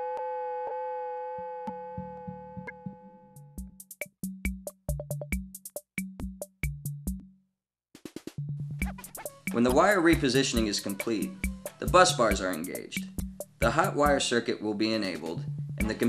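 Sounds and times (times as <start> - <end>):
electronic held tone: 0.0 - 3.5
two-note bass line: 1.7 - 3.7
drum-machine beat: 3.6 - 7.2, 8.0 - 14.2, 15.2 - 16.0.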